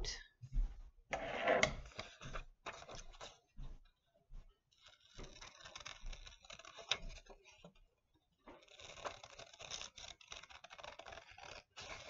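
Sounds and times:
paper rustling and crinkling: 0:04.7 - 0:07.8, 0:08.5 - 0:12.0
scissors snipping paper: 0:04.8 - 0:07.7, 0:08.5 - 0:12.0.

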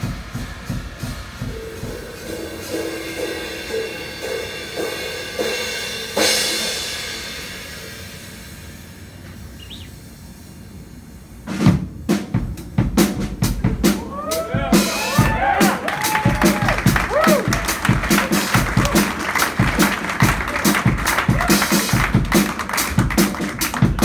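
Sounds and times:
loud hard drum strikes: 0:00.0 - 0:09.0, 0:11.5 - 0:24.0
cymbal crash: 0:00.0 - 0:09.2
drum strokes: 0:00.0 - 0:24.0.

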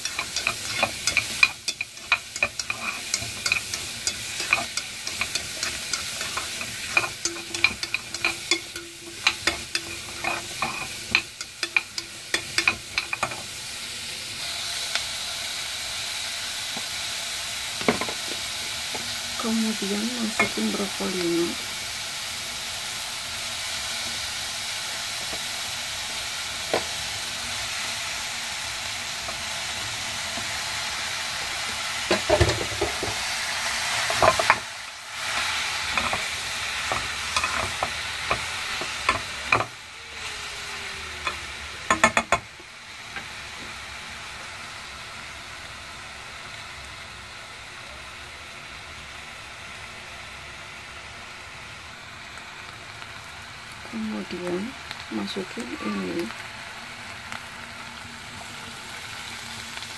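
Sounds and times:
tongs clicking against pan: 0:00.0 - 0:13.4, 0:35.3 - 0:39.7
vegetables sizzling in saucepan: 0:00.0 - 0:59.9.

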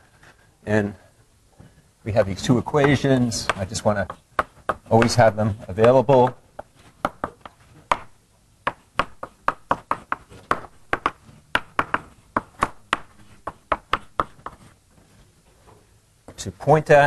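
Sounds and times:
writing taps on a board: 0:02.8 - 0:08.1, 0:08.7 - 0:14.7.

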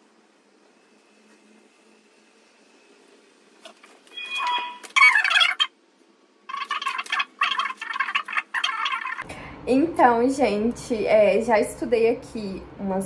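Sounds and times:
fast high-pitched gabbling voice: 0:06.5 - 0:09.2.

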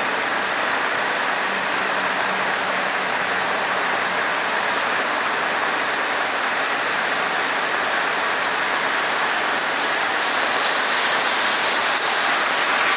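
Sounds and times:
heavy rain on wet asphalt: 0:00.0 - 0:12.9.

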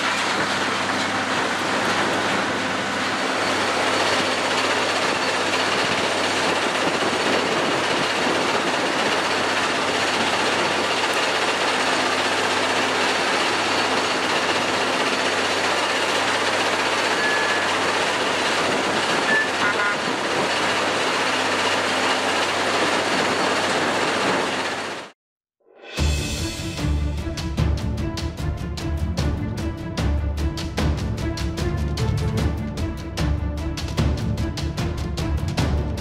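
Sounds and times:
ballast cleaner machine running: 0:00.0 - 0:25.1
high squeaks: 0:17.0 - 0:17.9, 0:19.2 - 0:20.1
low engine hum: 0:26.3 - 0:36.0.

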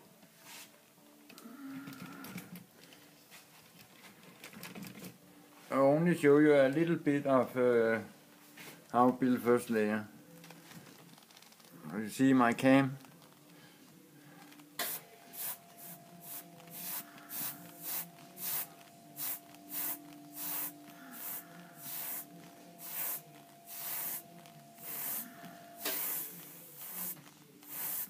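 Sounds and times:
airbrush spraying hiss: 0:14.8 - 0:28.0.

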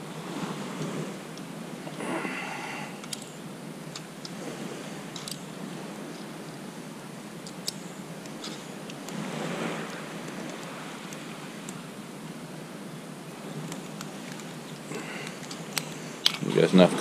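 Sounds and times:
steady background hiss: 0:00.0 - 0:17.0
clicks and rustles of hands wrapping: 0:13.6 - 0:16.5.

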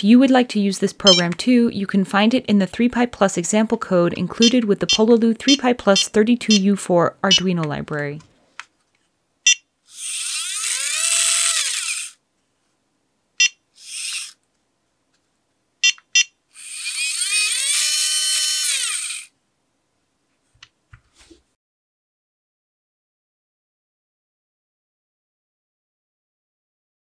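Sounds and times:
small gearmotor whining: 0:09.9 - 0:12.2, 0:13.8 - 0:14.4, 0:16.6 - 0:19.3
short beeps: 0:15.8 - 0:16.3.

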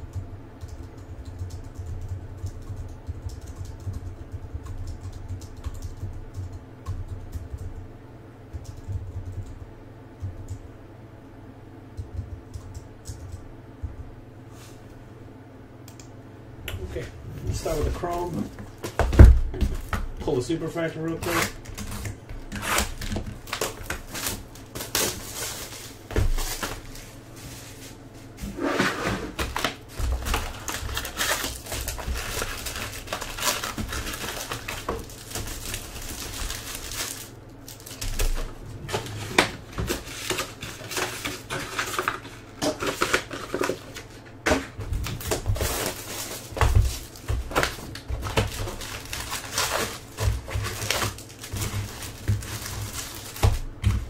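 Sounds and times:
foil wrappers crinkling: 0:17.5 - 0:28.0, 0:29.3 - 0:44.3, 0:45.0 - 0:54.0.

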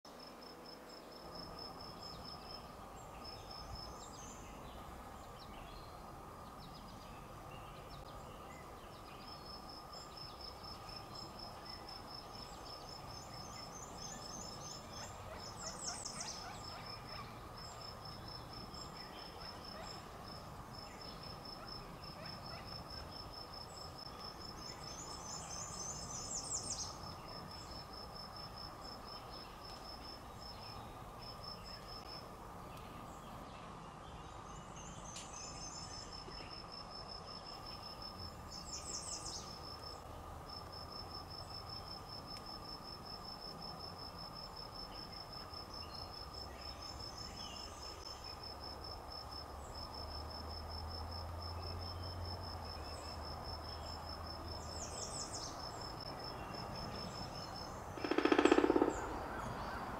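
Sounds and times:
insects trilling: 0:34.8 - 0:59.9.

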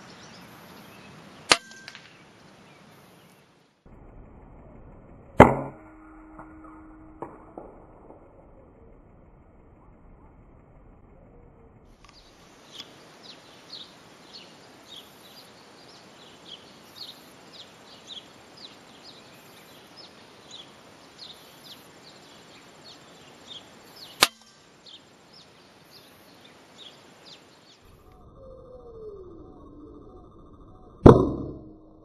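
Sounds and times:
small birds chirping: 0:00.0 - 0:03.8, 0:11.3 - 0:31.1
steady background noise: 0:00.0 - 0:32.0
air rifle shot: 0:01.5 - 0:02.2, 0:24.2 - 0:24.5.

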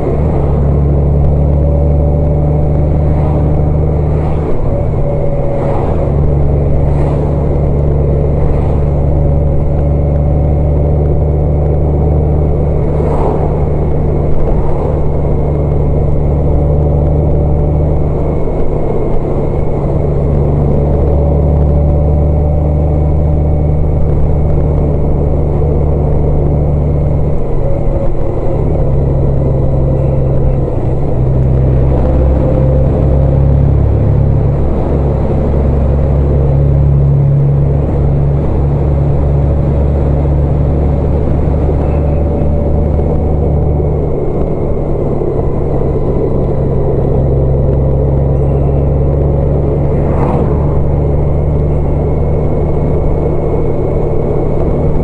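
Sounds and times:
vehicle engine and road drone: 0:00.0 - 0:55.0.

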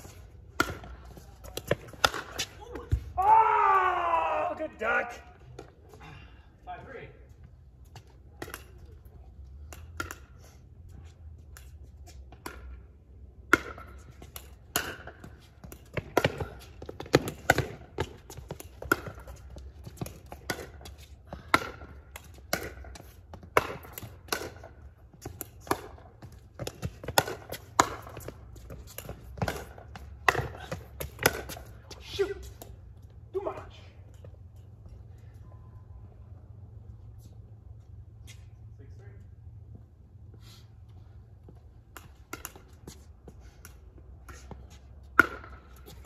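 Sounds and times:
ball bouncing on hard court: 0:14.7 - 0:19.4.

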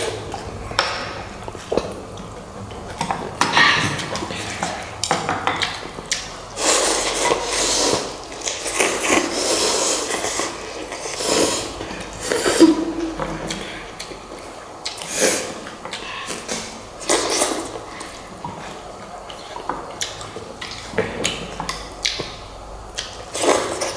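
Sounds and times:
noodle slurping: 0:06.5 - 0:13.8.

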